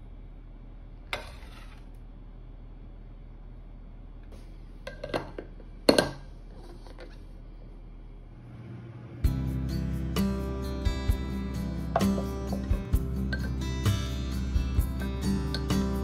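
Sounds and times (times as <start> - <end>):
spoon scooping powder: 1.2 - 2.0.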